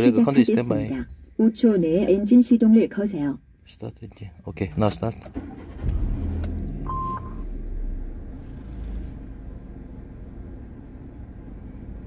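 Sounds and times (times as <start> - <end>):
car engine idling: 3.3 - 12.0
short electronic beep: 6.8 - 7.4.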